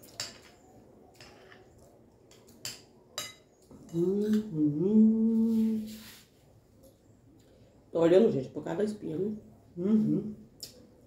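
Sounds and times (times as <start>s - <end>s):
metal spoon clinking glass plate: 2.6s - 3.5s
person humming: 3.8s - 6.0s, 9.8s - 10.4s.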